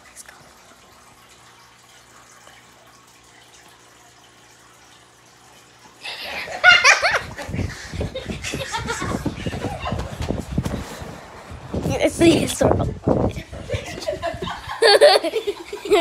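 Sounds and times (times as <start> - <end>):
laughter: 6.1 - 10.2, 13.5 - 16.0.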